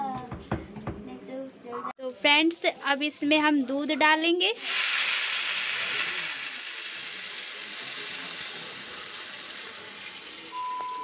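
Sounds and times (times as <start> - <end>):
hissing and sizzling: 2.5 - 10.5.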